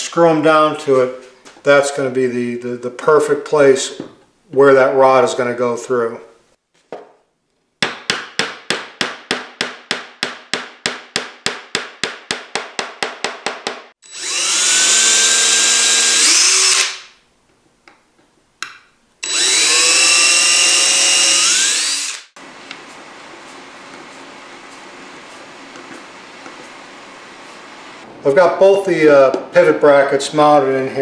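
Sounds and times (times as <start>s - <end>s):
cordless drill driving screws: 14.0s - 17.1s, 19.2s - 22.4s.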